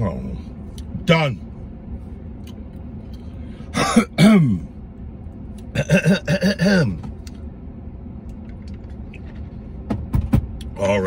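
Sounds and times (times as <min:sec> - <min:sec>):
man clearing his throat: 0:03.8 - 0:04.6, 0:05.7 - 0:07.0.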